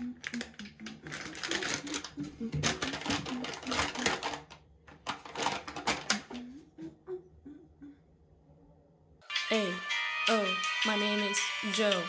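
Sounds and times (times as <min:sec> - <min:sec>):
woman humming: 0:00.0 - 0:04.0, 0:06.1 - 0:08.1
plastic wipes packet crinkling: 0:00.2 - 0:06.4.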